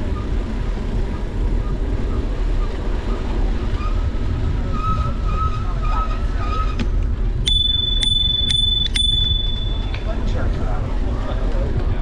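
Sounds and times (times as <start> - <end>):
bicycle tyres rolling over pavement: 0.0 - 12.0
wind on microphone: 0.0 - 12.0
high ringing tone with clicks: 7.4 - 10.1.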